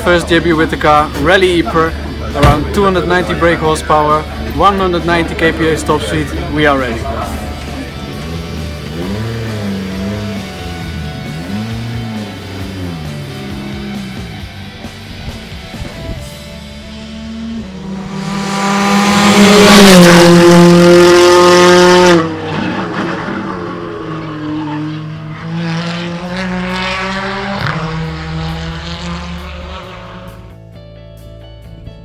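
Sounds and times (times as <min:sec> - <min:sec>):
quieter engine note: 0:00.0 - 0:22.3
background music: 0:00.0 - 0:22.5, 0:24.7 - 0:32.0
rally car engine passing at speed: 0:03.3 - 0:14.5, 0:16.5 - 0:30.5.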